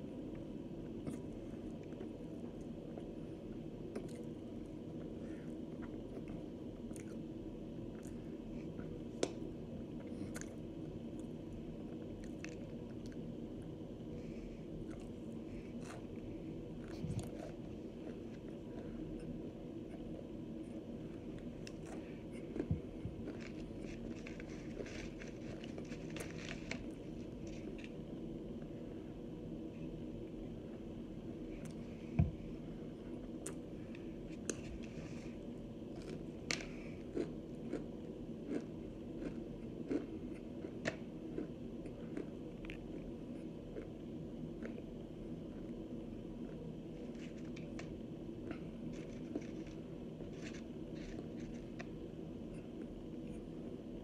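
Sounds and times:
steady low hum: 0.0 - 54.0
crunching and chewing: 0.8 - 13.7, 14.7 - 28.7, 33.1 - 53.6
cornstarch chunks crunching: 21.7 - 28.0.

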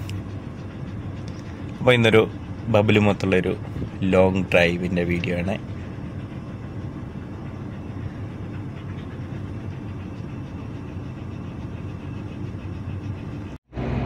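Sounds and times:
car engine and road noise: 13.6 - 14.0.

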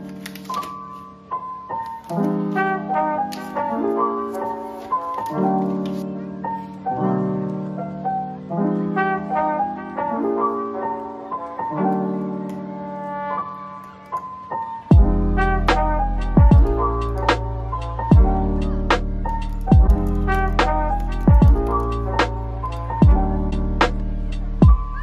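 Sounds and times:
plastic wrap crackling: 0.0 - 6.8, 19.0 - 23.0
soft piano music: 0.0 - 25.0.

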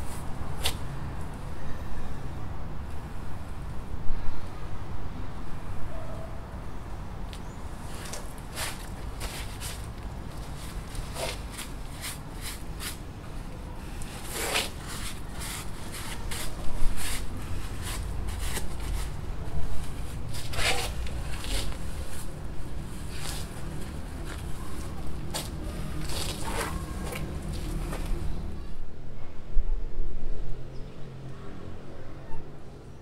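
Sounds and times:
bundle rustling and crinkling: 13.9 - 28.4.

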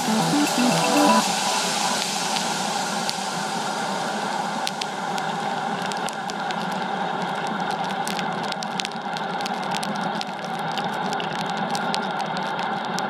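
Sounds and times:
sharp ticks: 4.6 - 13.0.

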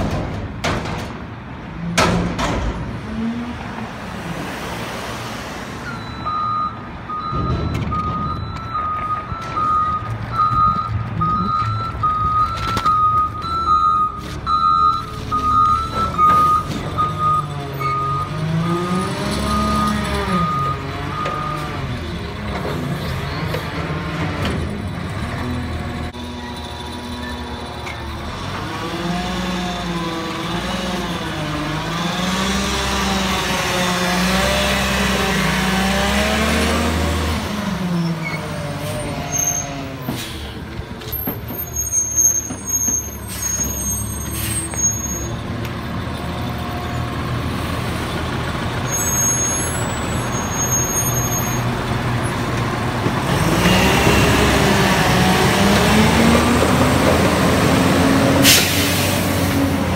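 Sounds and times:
high brake squeals: 38.0 - 45.4, 48.8 - 51.7
air brake hisses: 58.4 - 59.6.

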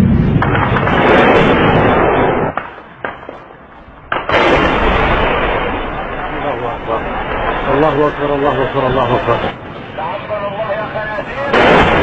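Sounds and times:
sharp cracks: 0.0 - 6.0
loud rumbling explosion: 0.0 - 10.0, 11.1 - 12.0.

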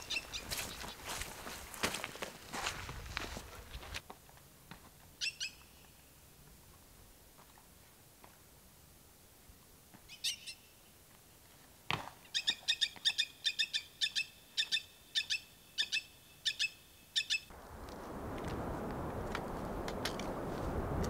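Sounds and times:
rushing noise: 17.5 - 21.0.

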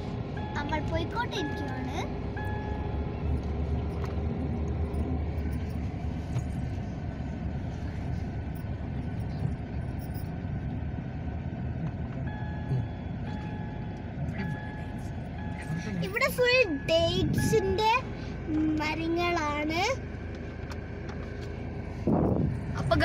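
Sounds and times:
car engine and tyres rumbling: 0.0 - 23.0.

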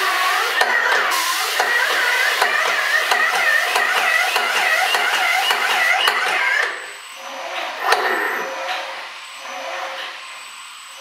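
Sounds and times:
spray gun hissing: 0.0 - 5.8.

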